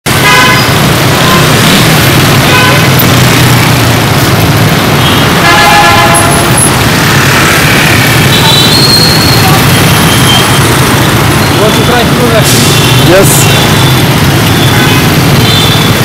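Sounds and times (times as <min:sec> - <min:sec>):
street traffic: 0:00.0 - 0:16.0
vehicle horns honking: 0:00.1 - 0:03.3, 0:05.0 - 0:06.8, 0:08.2 - 0:10.8, 0:11.6 - 0:16.0.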